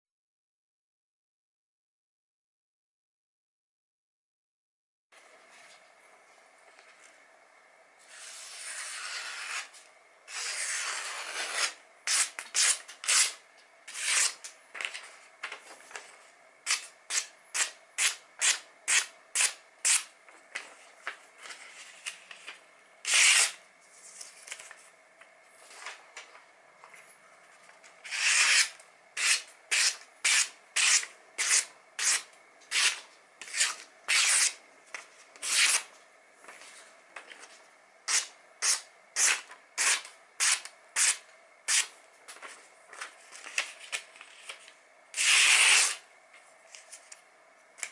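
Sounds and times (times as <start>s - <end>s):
knife slicing paper: 8.1s - 14.5s, 23.0s - 23.6s, 28.0s - 34.6s, 35.4s - 35.9s, 38.1s - 41.9s, 43.3s - 46.0s
paper rustling: 14.1s - 16.4s, 23.2s - 28.6s, 42.3s - 44.8s.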